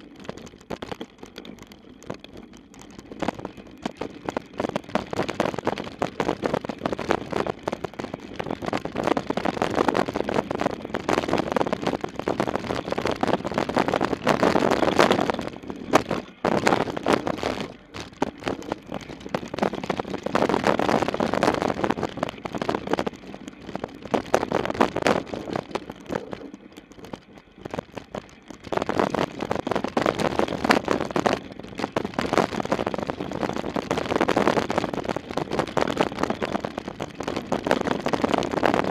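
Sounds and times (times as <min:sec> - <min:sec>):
bike rattling over bumps: 0:00.0 - 0:38.9
bike tyres on dirt: 0:00.0 - 0:38.9.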